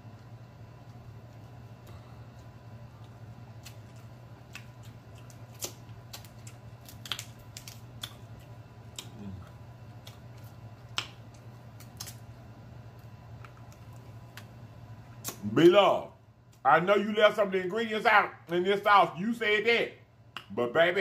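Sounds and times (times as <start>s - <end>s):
crab shells cracking: 3.5s - 12.2s.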